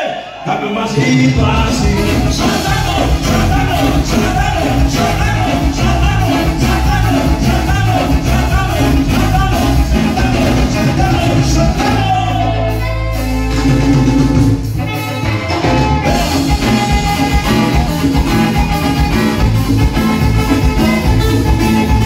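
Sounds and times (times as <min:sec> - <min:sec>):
live dance band playing: 0:00.0 - 0:22.0.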